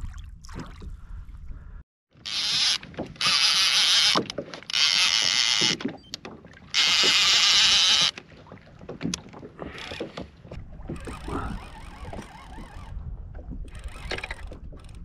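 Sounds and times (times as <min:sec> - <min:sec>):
fishing reel whirring: 0:02.2 - 0:05.8, 0:06.7 - 0:08.2, 0:10.8 - 0:13.0, 0:13.7 - 0:15.0
water lapping: 0:02.8 - 0:15.0.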